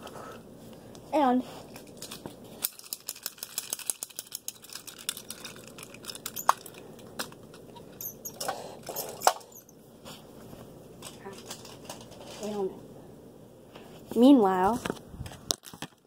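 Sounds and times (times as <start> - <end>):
handling clicks and rustles: 1.7 - 9.7.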